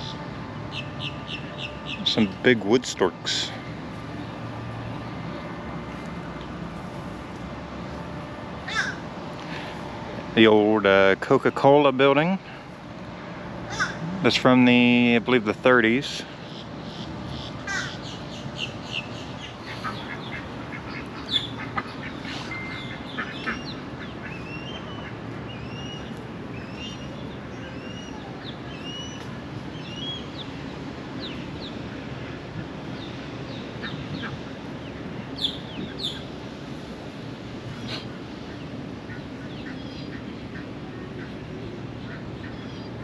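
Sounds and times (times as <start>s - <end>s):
ducks quacking: 13.7s - 14.4s, 19.5s - 25.2s.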